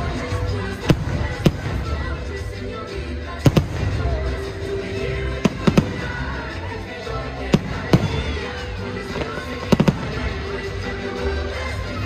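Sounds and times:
music: 0.0s - 12.0s
fireworks bangs: 3.4s - 4.6s, 5.4s - 6.5s, 7.5s - 10.7s.

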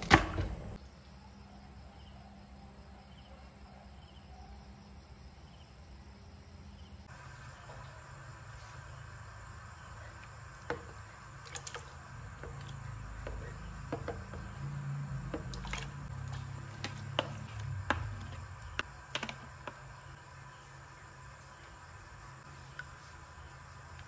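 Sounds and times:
food splashing into water: 11.3s - 14.6s, 15.2s - 18.8s
wooden spoon knocking bowl: 12.4s - 19.9s.

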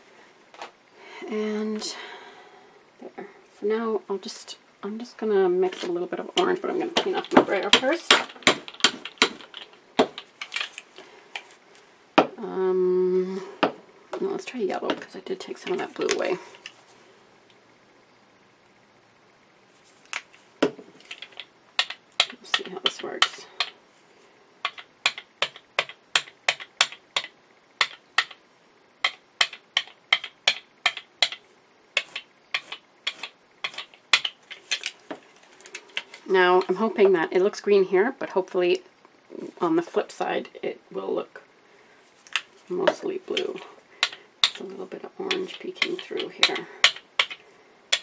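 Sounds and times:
steady pitched hum: 0.0s - 48.0s
clicks and taps of supplies: 20.1s - 23.8s, 24.6s - 28.4s, 29.0s - 31.4s, 42.2s - 44.6s, 45.3s - 48.0s.

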